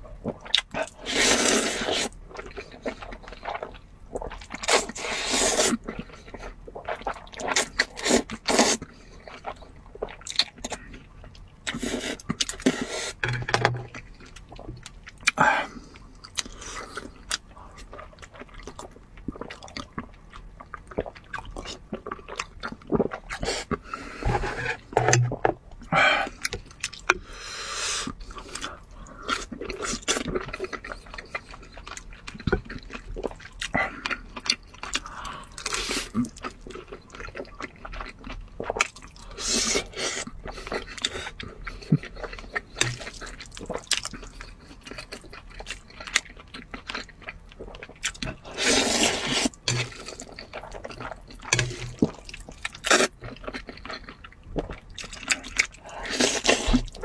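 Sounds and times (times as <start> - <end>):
wet chewing and lip-smacking: 0.2 - 27.3, 28.0 - 57.0
slurping: 0.8 - 2.2, 4.6 - 5.8, 23.0 - 26.5, 39.3 - 45.1, 48.0 - 53.2, 55.3 - 57.0.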